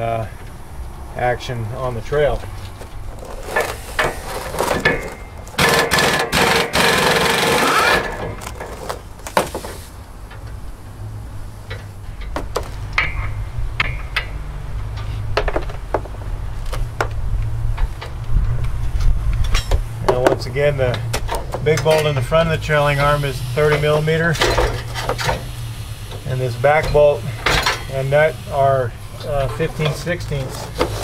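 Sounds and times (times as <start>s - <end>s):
air impact wrench rattling: 3.1s - 10.0s, 20.8s - 31.0s.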